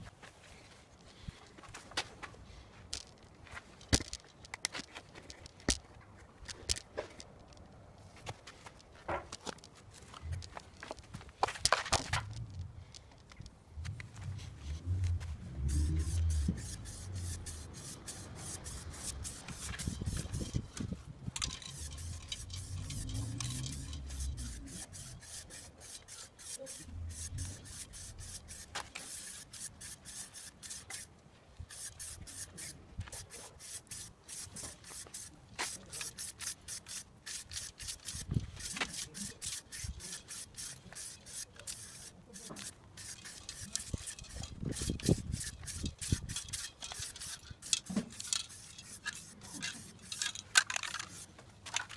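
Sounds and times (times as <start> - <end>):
spray paint can hissing: 15.0 - 20.7, 21.4 - 31.1, 31.7 - 51.3.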